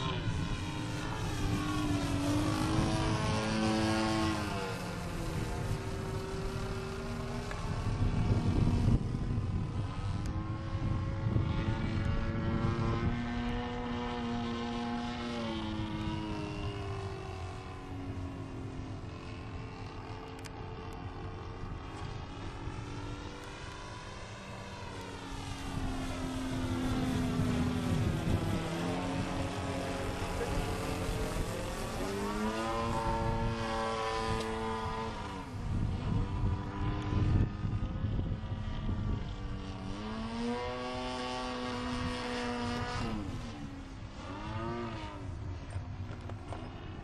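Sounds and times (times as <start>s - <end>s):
model airplane engine drone: 0.0s - 47.0s.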